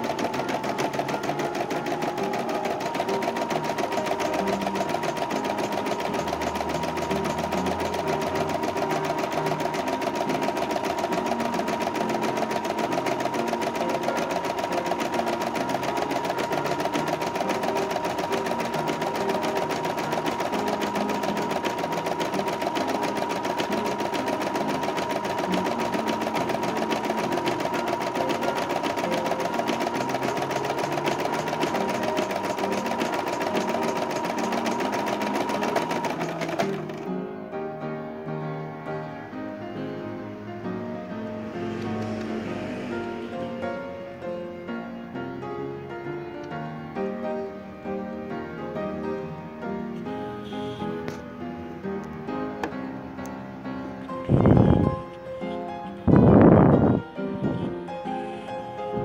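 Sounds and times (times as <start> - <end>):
embroidery machine needle chatter: 0.0 - 37.0.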